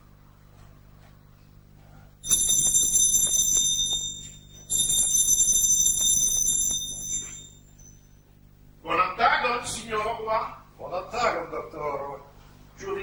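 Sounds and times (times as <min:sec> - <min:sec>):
electric doorbell ringing: 0:02.2 - 0:08.2.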